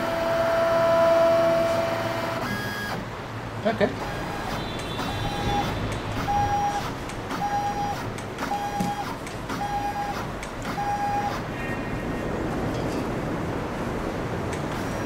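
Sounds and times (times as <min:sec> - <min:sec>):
stepper motor whine: 0:00.0 - 0:03.1, 0:04.0 - 0:11.5.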